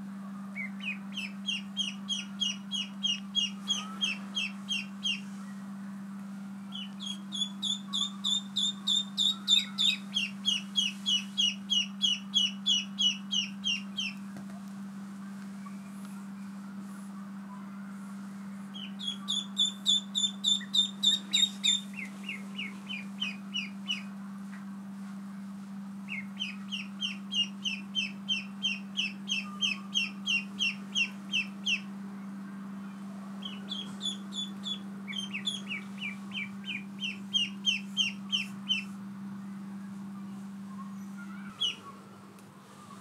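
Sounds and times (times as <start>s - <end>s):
low hum: 0.0s - 43.0s
ducklings peeping: 0.6s - 5.3s, 6.7s - 14.2s, 18.7s - 24.1s, 26.1s - 31.9s, 33.4s - 39.0s, 41.2s - 42.0s.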